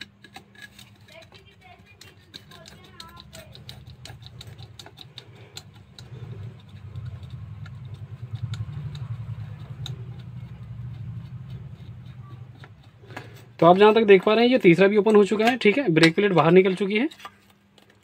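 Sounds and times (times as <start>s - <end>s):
screwdriver scraping metal screw: 0.0s - 15.8s
low rumble of metal plate handled: 0.2s - 14.1s.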